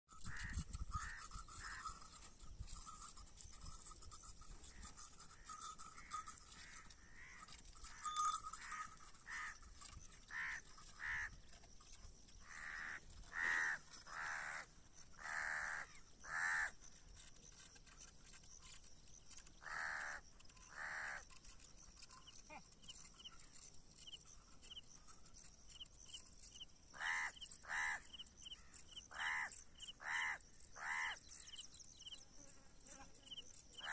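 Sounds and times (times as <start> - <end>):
crows cawing: 10.3 - 11.4, 12.4 - 16.8, 19.6 - 21.2, 27.0 - 28.0, 29.1 - 31.2.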